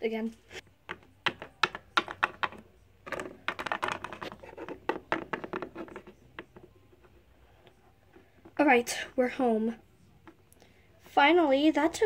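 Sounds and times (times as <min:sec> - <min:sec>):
plastic figurines tapping on table: 0:00.8 - 0:06.7.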